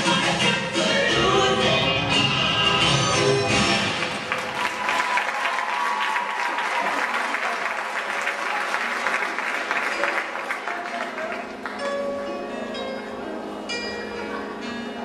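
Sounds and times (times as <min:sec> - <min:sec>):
audience applauding: 0:03.8 - 0:11.9
music with held notes: 0:10.1 - 0:15.0.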